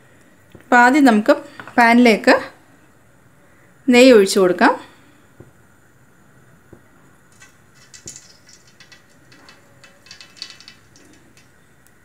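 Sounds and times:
fat crackling in a pan: 0:07.2 - 0:12.0.

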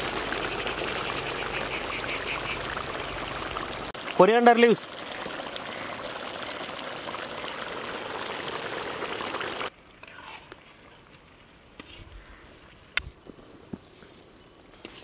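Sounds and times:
curry bubbling at a boil: 0:00.0 - 0:10.6.

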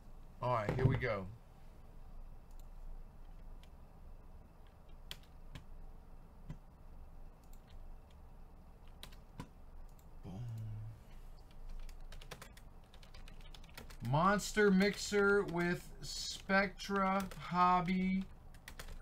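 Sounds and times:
computer keyboard typing: 0:04.6 - 0:05.7, 0:07.4 - 0:08.2, 0:08.8 - 0:10.1, 0:11.5 - 0:19.0.

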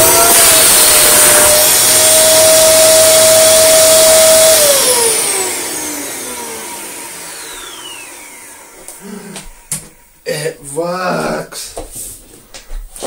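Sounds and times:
vacuum cleaner motor spinning down: 0:00.0 - 0:10.1.

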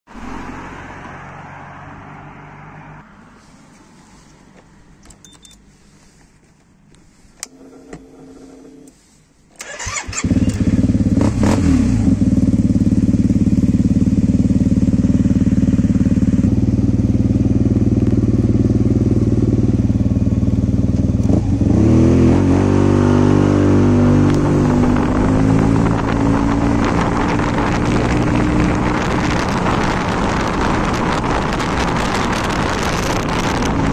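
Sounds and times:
scooter engine idling and accelerating: 0:00.1 - 0:33.9
wind on microphone: 0:23.7 - 0:33.9.

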